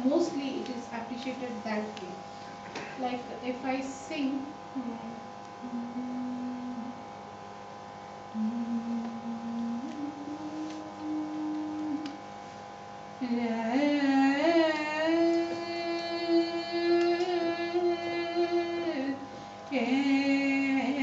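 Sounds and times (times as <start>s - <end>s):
steady drone: 0.8s - 7.2s, 8.3s - 12.5s
woman singing: 3.0s - 7.0s, 8.4s - 12.2s, 13.2s - 21.0s.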